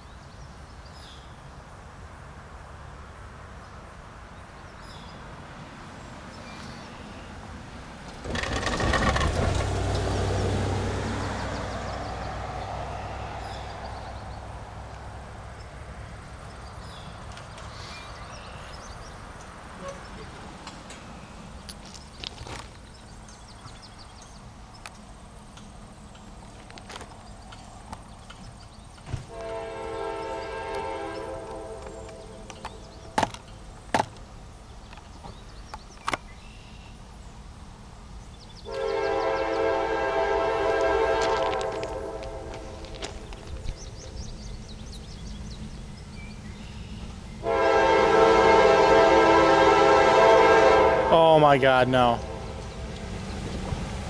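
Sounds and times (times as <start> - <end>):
distant locomotive engine drone: 1.0 - 54.0
locomotive air horn blast: 29.3 - 33.2, 38.6 - 42.8, 47.4 - 52.9.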